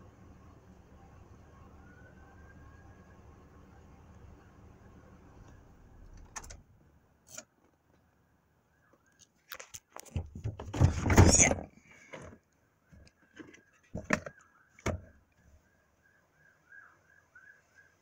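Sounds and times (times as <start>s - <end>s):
phone handling clicks and rustling: 9.2s - 11.0s.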